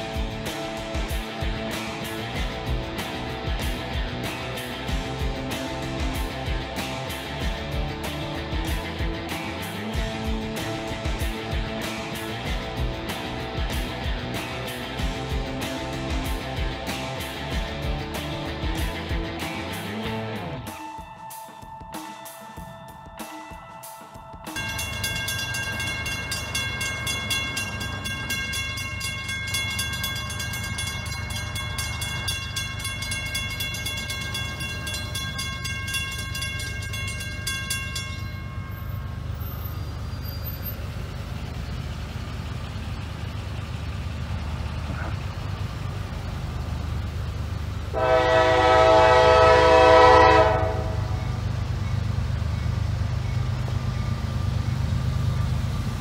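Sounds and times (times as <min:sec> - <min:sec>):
railroad crossing bell ringing: 0:20.7 - 0:44.8, 0:45.4 - 0:56.0
locomotive air horn blast: 0:47.9 - 0:51.3.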